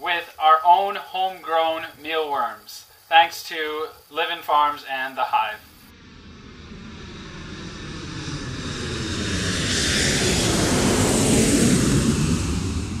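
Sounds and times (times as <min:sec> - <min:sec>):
airplane flying past: 0:05.7 - 0:13.0.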